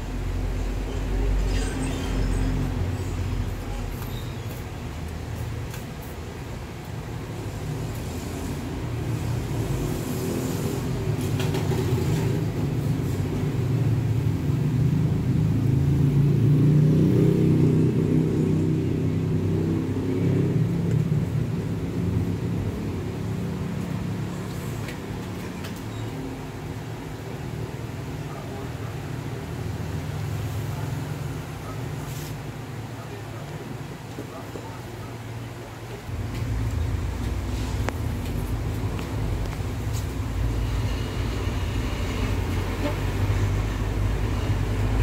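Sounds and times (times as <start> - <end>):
low rumbling hum: 36.1 - 44.4.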